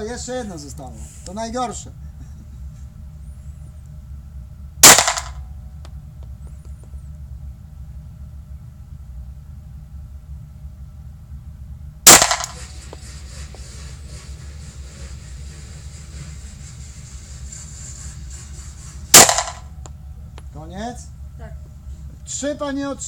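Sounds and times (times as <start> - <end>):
steady low hum: 0.0 - 23.0
pistol shots echoing indoors: 4.8 - 5.4, 12.1 - 12.6, 19.2 - 19.7.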